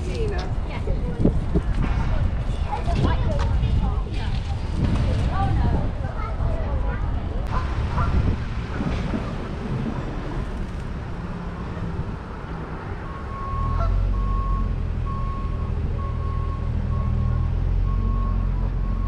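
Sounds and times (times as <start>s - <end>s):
outdoor noise: 0.0s - 19.0s
heavy engine running: 7.5s - 19.0s
reversing alarm beeping: 13.0s - 19.0s.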